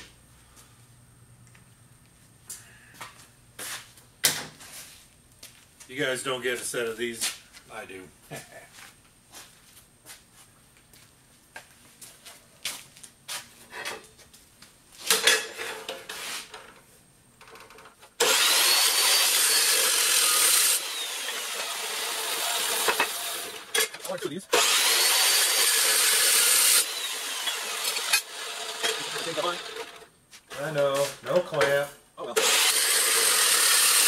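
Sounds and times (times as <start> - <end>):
chop saw cutting steel: 18.2 - 30.1, 32.3 - 34.0
saw motor running: 18.2 - 30.1, 32.4 - 34.0.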